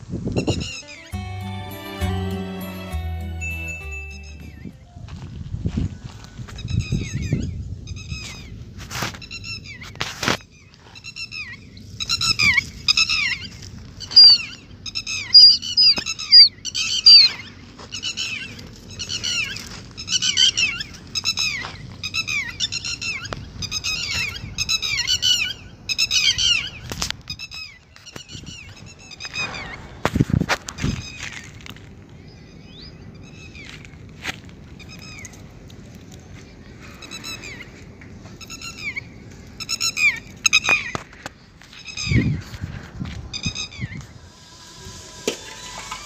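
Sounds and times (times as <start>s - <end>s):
lapwing calling: 11.1s - 26.8s.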